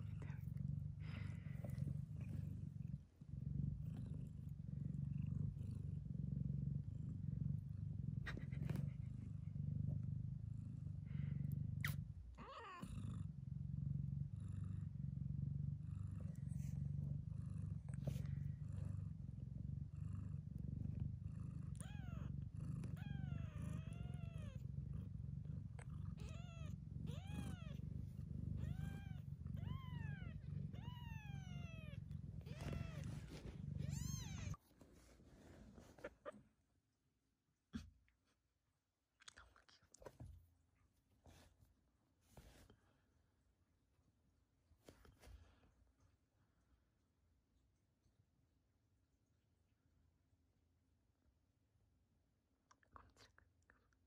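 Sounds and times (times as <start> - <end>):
cat purring: 0.0 - 36.9.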